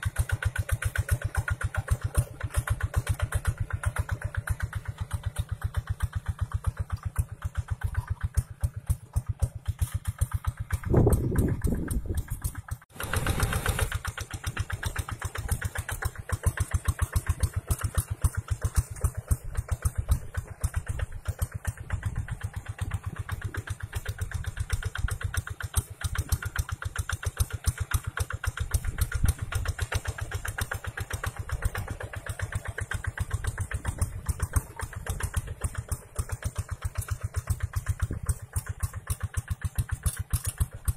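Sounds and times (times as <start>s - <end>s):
diesel engine chugging: 0.0s - 40.9s.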